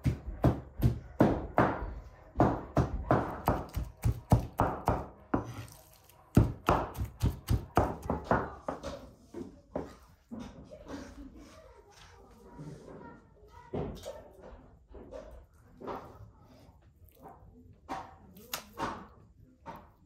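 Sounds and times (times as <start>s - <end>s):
cleaver chopping on wooden board: 2.4s - 5.6s, 6.3s - 8.5s.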